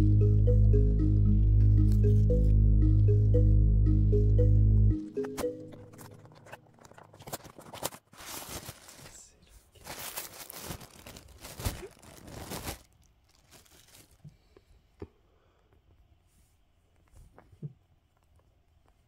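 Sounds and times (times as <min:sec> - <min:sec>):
paper packet tearing and crinkling: 0:05.9 - 0:09.2, 0:09.8 - 0:14.2.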